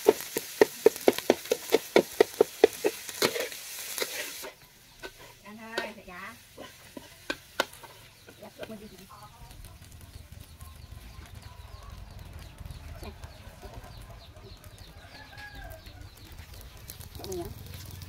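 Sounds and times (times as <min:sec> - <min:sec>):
chickens chirping and clucking: 0:07.1 - 0:18.0.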